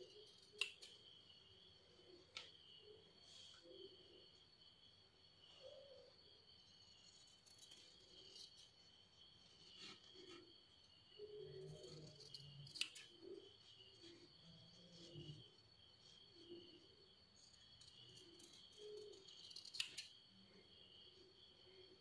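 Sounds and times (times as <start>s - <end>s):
scissors cutting cloth: 18.3s - 20.1s.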